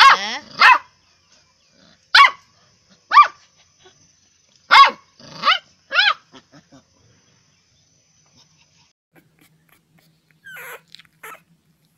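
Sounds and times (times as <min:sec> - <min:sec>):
puppy barking: 0:00.0 - 0:00.9, 0:02.1 - 0:02.5, 0:03.1 - 0:03.4, 0:04.7 - 0:06.7
puppy yipping: 0:08.8 - 0:11.5.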